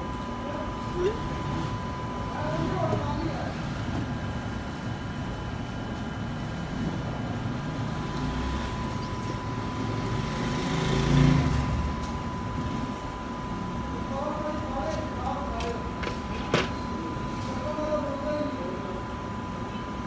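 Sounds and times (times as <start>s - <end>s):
faint high whine: 0.0s - 20.0s
low traffic rumble: 0.0s - 20.0s
vehicle passing: 9.8s - 11.9s.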